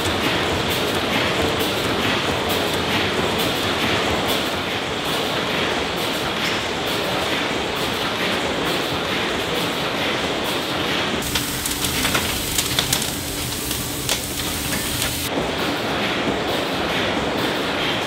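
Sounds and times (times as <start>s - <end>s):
steam engine running: 0.0s - 4.6s, 11.2s - 15.3s
coal fire crackling: 11.2s - 15.3s.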